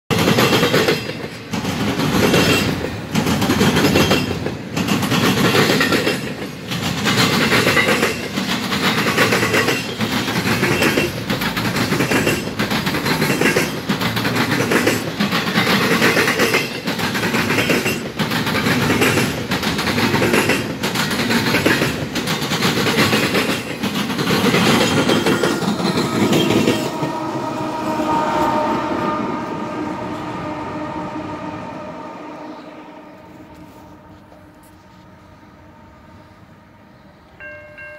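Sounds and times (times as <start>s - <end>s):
steel wheels clattering on rails: 0.1s - 27.3s
diesel locomotive hum: 1.2s - 37.9s.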